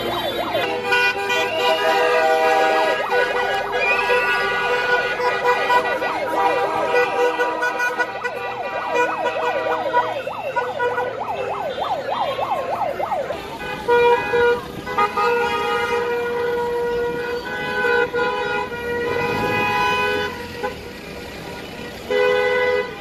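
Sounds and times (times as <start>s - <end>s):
car horns blaring: 0.0s - 23.0s
yelping siren: 1.4s - 13.5s.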